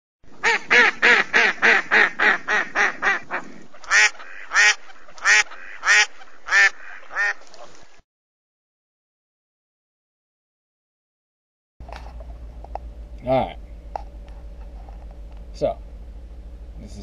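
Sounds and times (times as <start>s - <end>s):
duck quacking: 0.3s - 7.7s.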